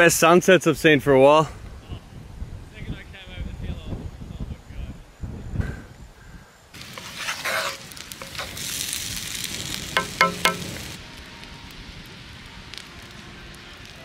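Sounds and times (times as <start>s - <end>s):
curry sizzling and bubbling: 6.7s - 14.0s
fire crackles: 6.7s - 14.0s
wooden spoon scraping pot: 6.8s - 8.7s.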